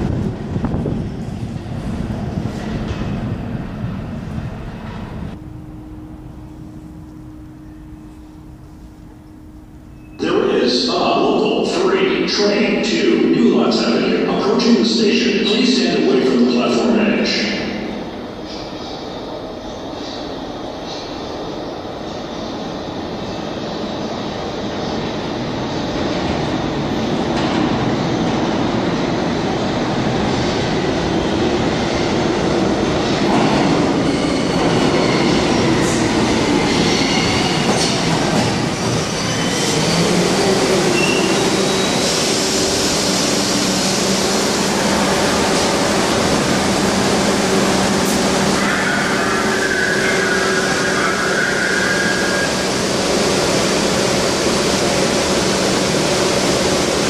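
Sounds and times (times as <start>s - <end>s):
subway train rumble: 0.0s - 57.0s
wheel and brake squeal: 40.9s - 42.1s, 48.6s - 52.6s.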